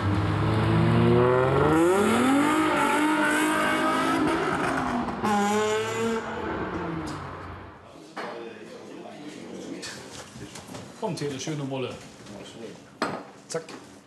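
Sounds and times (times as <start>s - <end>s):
car engine revving: 0.0s - 7.7s.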